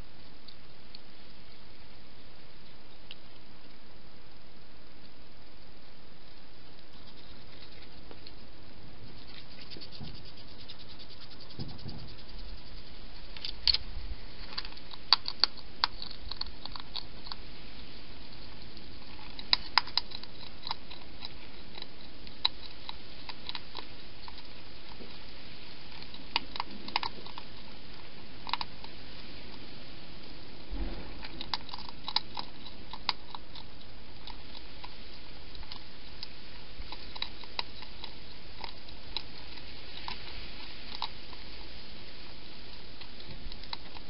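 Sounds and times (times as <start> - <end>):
steady hiss: 0.0 - 44.0
hedgehog clicks and crunches: 6.3 - 8.4, 9.1 - 17.5, 18.2 - 29.6, 30.2 - 41.7, 42.7 - 44.0.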